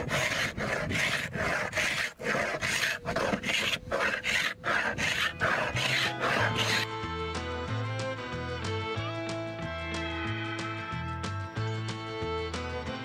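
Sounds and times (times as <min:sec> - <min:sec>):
scraper rasping on painted wood: 0:00.0 - 0:06.9.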